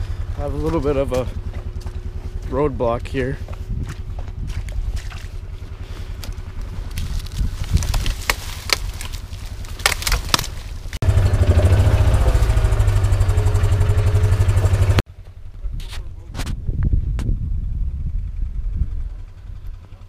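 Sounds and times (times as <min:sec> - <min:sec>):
utility vehicle engine: 0:00.0 - 0:15.6
sticks and brush snapping: 0:06.0 - 0:11.0.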